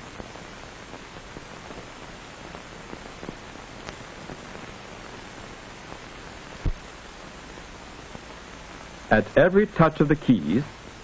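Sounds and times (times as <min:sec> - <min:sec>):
film soundtrack hiss: 0:00.0 - 0:11.0
faint clicks and pops: 0:00.1 - 0:08.9.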